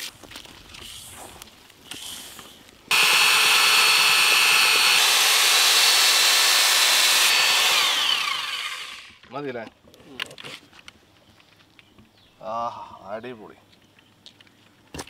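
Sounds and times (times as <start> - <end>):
electric drill motor whine: 2.9 - 9.2.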